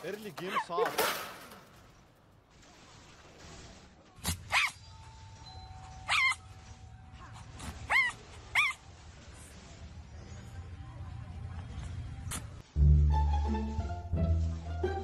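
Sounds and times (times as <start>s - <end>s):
fox yipping: 4.3s - 4.9s, 5.9s - 6.6s, 7.7s - 8.8s.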